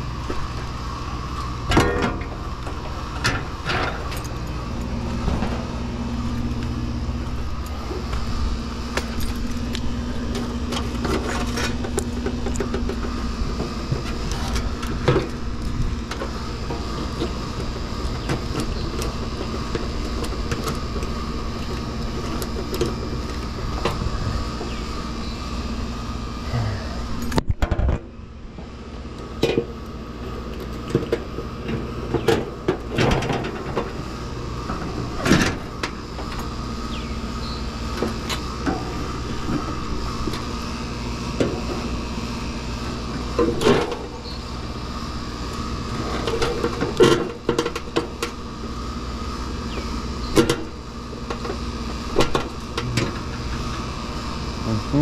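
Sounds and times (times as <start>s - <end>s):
steady background hum: 0.0s - 55.0s.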